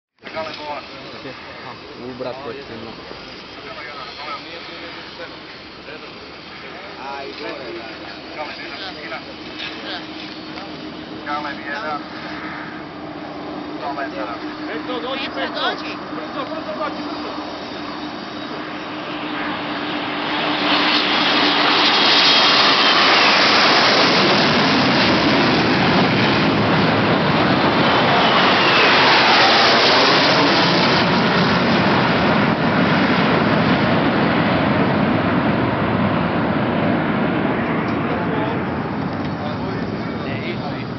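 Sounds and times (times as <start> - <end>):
falling jet whine: 0.2 - 40.9
jet aircraft roaring overhead: 0.2 - 40.9.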